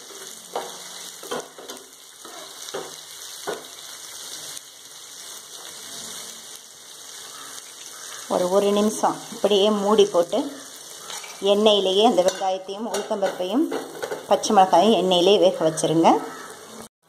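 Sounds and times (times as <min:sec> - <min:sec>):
onions and spices sizzling in oil: 0:00.0 - 0:16.9
metal spoon scraping pan: 0:11.0 - 0:14.8.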